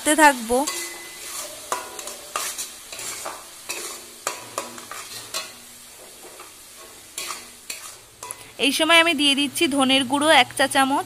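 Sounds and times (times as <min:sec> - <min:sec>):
frying sizzle: 0:00.0 - 0:11.0
metal spatula scraping pan: 0:00.6 - 0:08.5.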